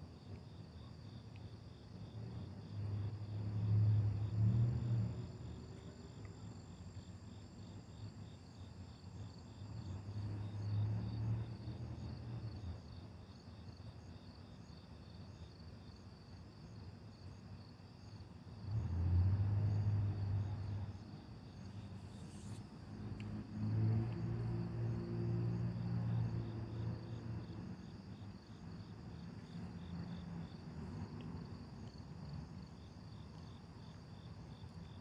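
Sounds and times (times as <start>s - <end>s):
crickets chirping: 0.0s - 35.0s
passing cars hum: 2.0s - 6.3s, 9.6s - 12.8s, 18.6s - 34.9s.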